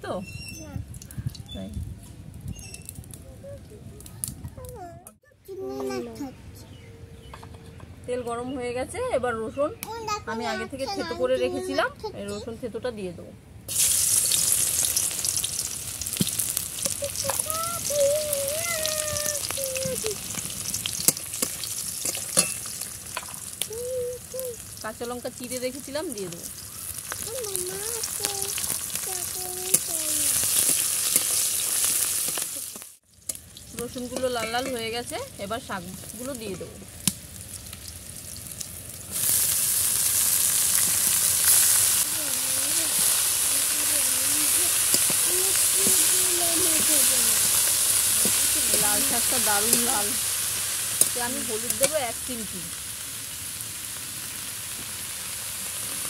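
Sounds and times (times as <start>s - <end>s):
garlic frying in hot oil: 13.7s - 56.0s.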